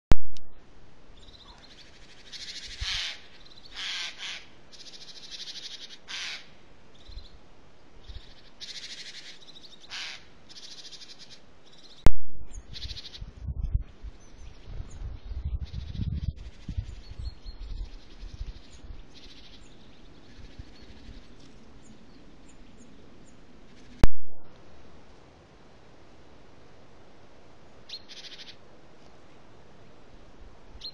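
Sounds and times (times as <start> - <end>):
harsh bird calls: 1.2 - 7.4, 8.0 - 13.3, 27.9 - 28.6.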